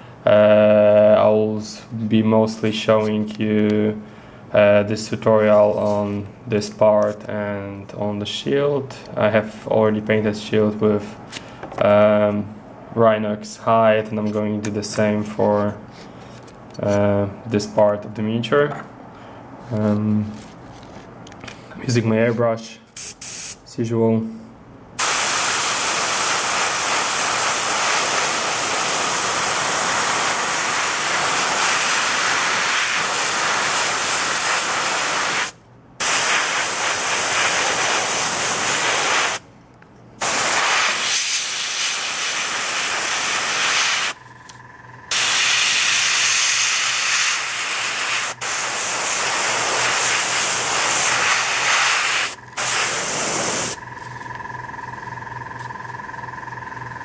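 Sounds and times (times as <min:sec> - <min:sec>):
airbrush spraying hiss: 0:23.0 - 0:23.6, 0:25.0 - 0:39.4, 0:40.2 - 0:44.2, 0:45.1 - 0:53.8.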